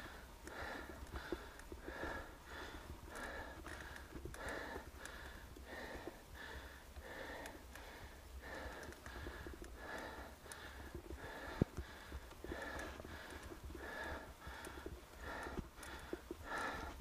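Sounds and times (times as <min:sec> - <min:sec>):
person breathing hard: 0:00.0 - 0:17.0.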